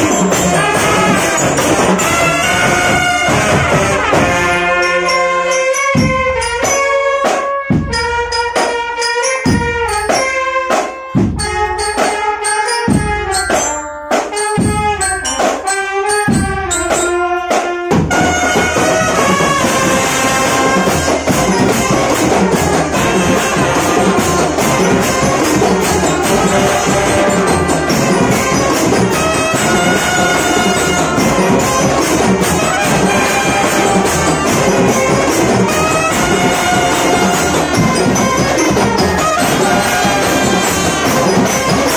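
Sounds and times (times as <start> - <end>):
snare and bass drums: 0.0 - 4.8, 6.0 - 8.9, 9.5 - 41.9
brass instruments playing: 0.0 - 41.9.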